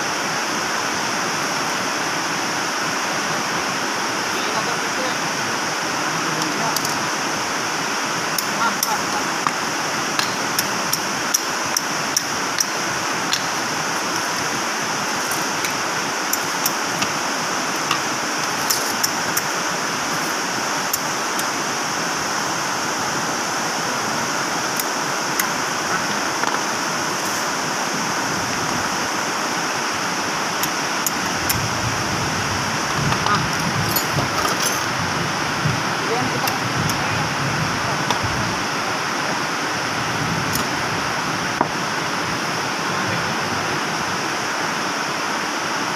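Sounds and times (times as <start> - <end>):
steady rushing noise: 0.0 - 45.9
metal tools clicking and tapping: 10.2 - 12.7, 17.8 - 19.5, 33.9 - 34.9.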